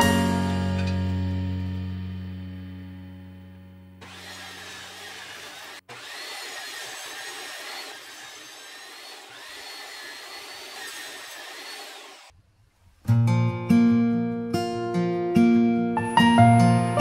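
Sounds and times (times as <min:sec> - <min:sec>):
table saw cutting wood: 0:04.0 - 0:12.3.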